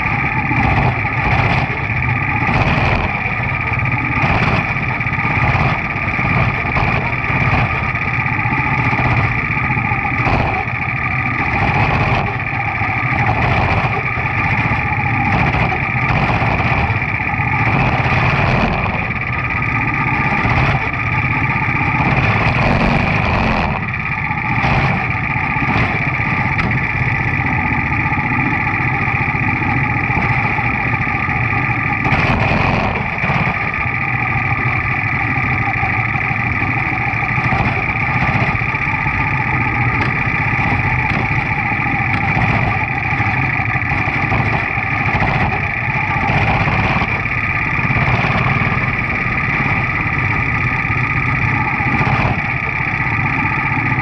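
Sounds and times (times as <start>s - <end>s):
race car engine running: 0.0s - 54.0s.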